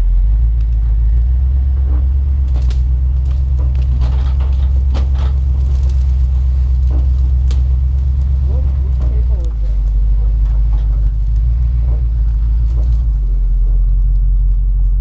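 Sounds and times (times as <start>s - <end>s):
off-road vehicle engine droning: 0.0s - 15.0s
clicks and knocks: 1.9s - 13.3s.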